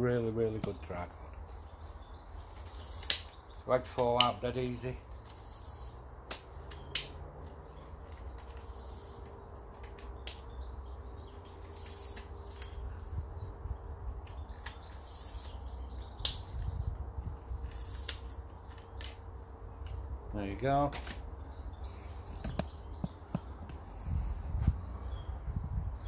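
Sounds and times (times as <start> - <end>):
tripod legs clicking: 2.4 - 12.9, 17.4 - 20.1
steady low rumble: 21.2 - 26.0.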